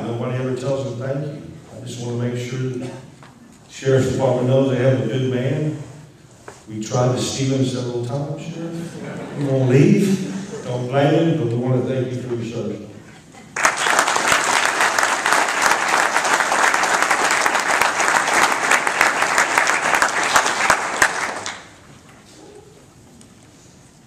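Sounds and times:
audience applauding: 13.5s - 21.8s.

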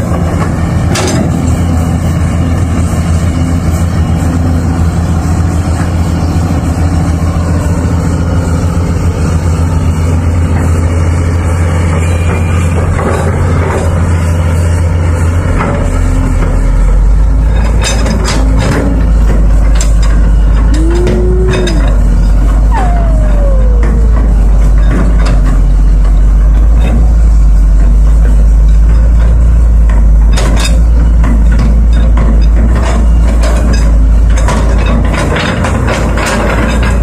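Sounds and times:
excavator diesel engine under load: 0.0s - 37.0s
tone gliding in pitch: 20.6s - 25.8s.

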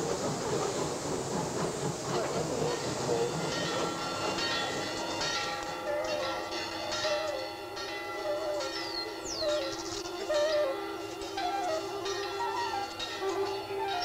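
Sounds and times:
dense rushing hiss: 0.0s - 13.9s
sustained musical chord: 3.3s - 14.0s.

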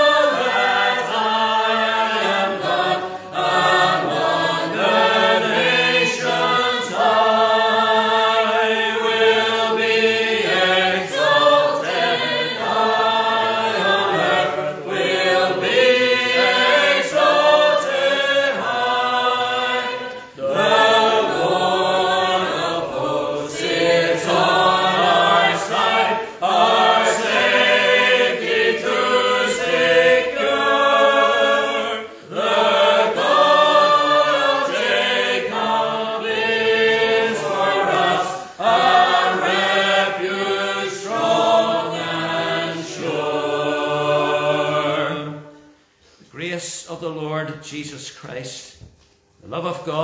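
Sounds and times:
congregation singing a psalm: 0.0s - 48.0s.

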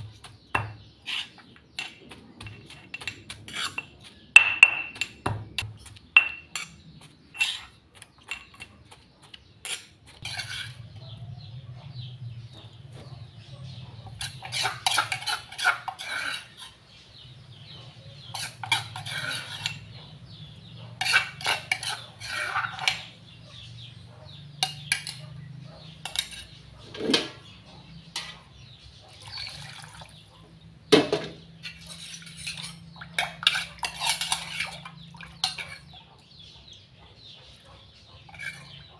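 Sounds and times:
spoon scraping stone mortar: 0.0s - 29.9s, 31.1s - 36.8s, 37.5s - 38.9s.

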